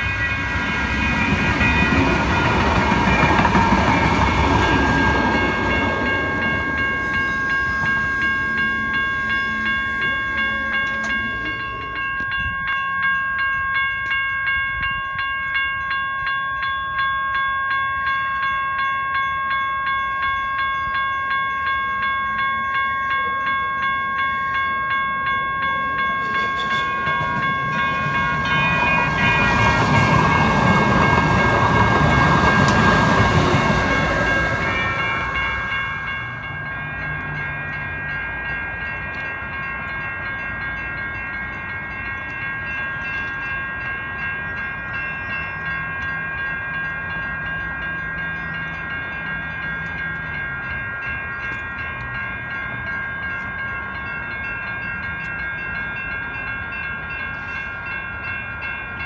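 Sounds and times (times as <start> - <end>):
train rushing past: 0.0 - 12.4, 23.5 - 43.1
crossing warning bell ringing: 0.0 - 59.0.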